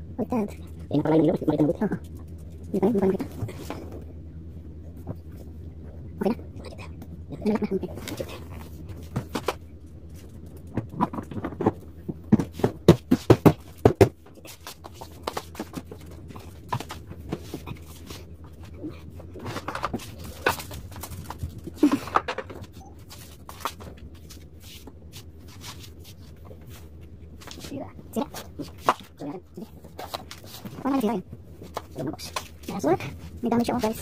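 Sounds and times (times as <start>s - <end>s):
sharp knocks and clatter: 10.4s - 17.8s.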